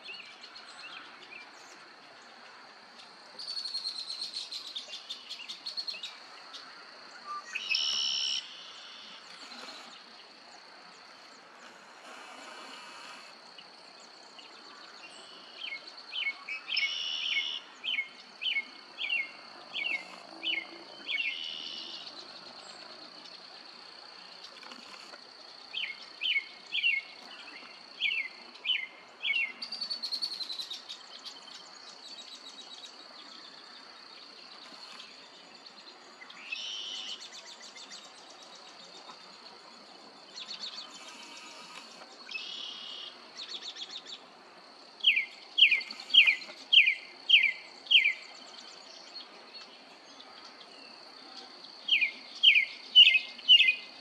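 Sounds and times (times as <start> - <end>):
birds chirping and trilling: 24.4 - 44.3, 45.0 - 54.0.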